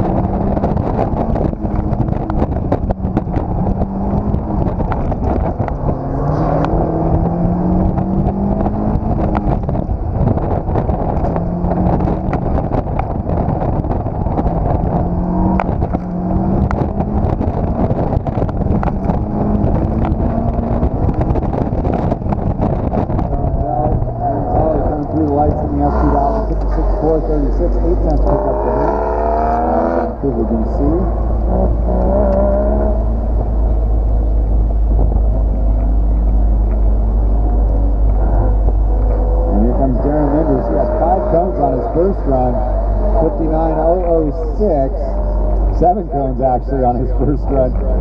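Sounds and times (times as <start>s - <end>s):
sharp clicks and knocks: 0.0s - 6.0s
sports car engine revving: 0.0s - 48.0s
wind and road noise: 0.0s - 48.0s.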